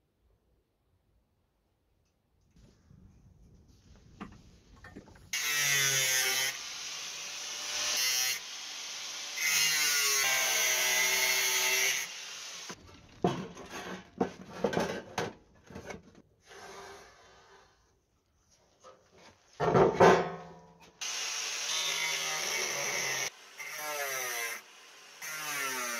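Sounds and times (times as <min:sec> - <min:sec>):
grinder grinding steel: 0:05.3 - 0:12.8, 0:21.0 - 0:25.9.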